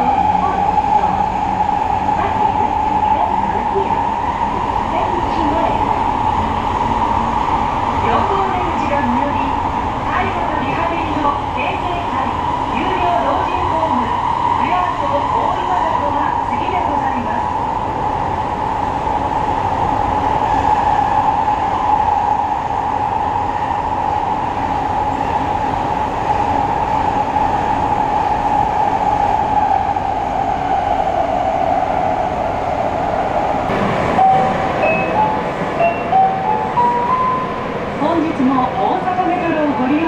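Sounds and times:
subway car rumble and hum: 0:00.0 - 0:40.0.

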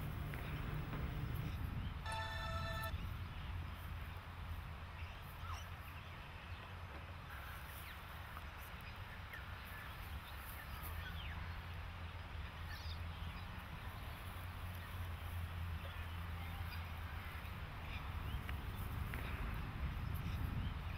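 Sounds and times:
steady low rumble: 0:00.0 - 0:05.2.

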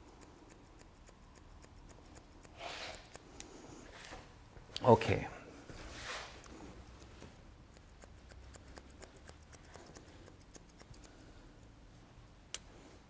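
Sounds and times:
hair scissors snipping: 0:00.0 - 0:03.5, 0:06.4 - 0:11.7.

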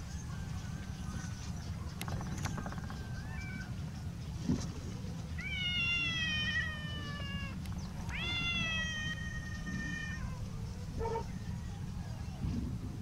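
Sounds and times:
cat meowing: 0:05.4 - 0:10.4.

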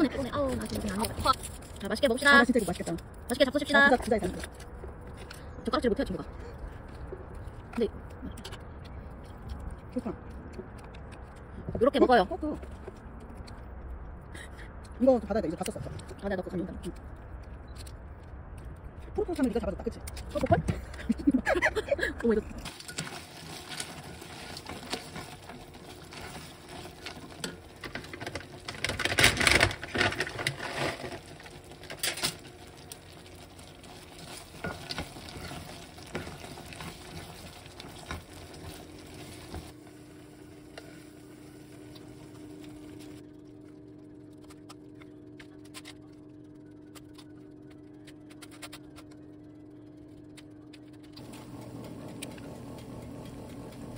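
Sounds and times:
steady hum: 0:00.0 - 0:53.9
caramel bubbling in a pot: 0:22.6 - 0:43.4
wooden spoon stirring cereal: 0:22.7 - 0:43.2.

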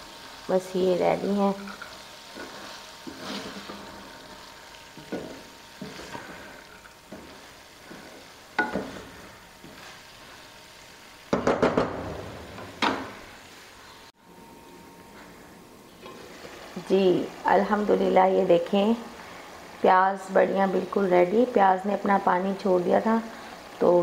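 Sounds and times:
low sizzle of frying: 0:00.0 - 0:24.0
wooden spatula scraping metal pan: 0:01.6 - 0:04.0, 0:05.0 - 0:10.4.

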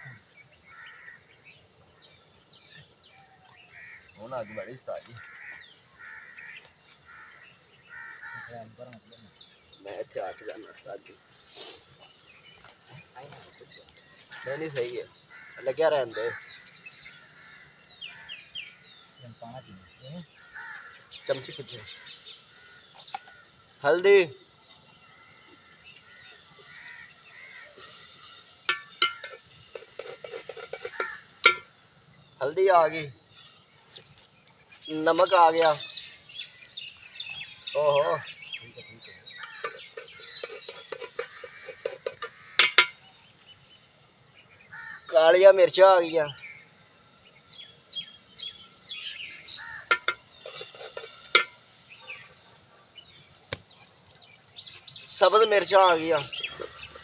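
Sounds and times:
small birds chirping: 0:00.0 - 0:57.0
metal spoon scraping a pot: 0:26.3 - 0:31.7, 0:39.4 - 0:43.0, 0:49.8 - 0:51.8, 0:55.9 - 0:57.0
metal spoon clinking in pot: 0:28.7 - 0:31.7.

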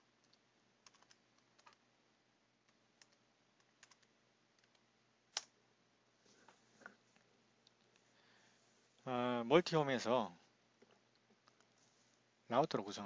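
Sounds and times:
keyboard typing: 0:00.2 - 0:01.8, 0:02.6 - 0:05.5, 0:11.4 - 0:11.8.

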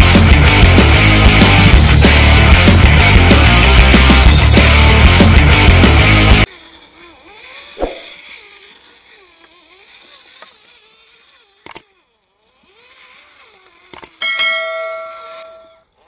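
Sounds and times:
electric motor whining: 0:00.0 - 0:14.3
sharp double click: 0:11.6 - 0:11.9, 0:13.9 - 0:14.2.

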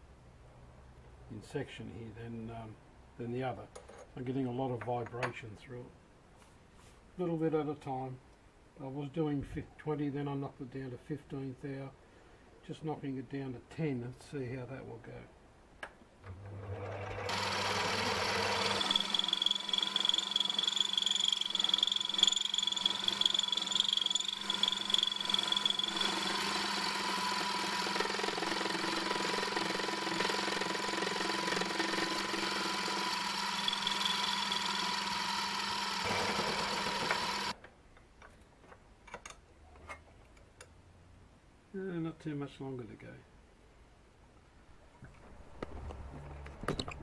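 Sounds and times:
lathe motor whine: 0:16.6 - 0:37.5.

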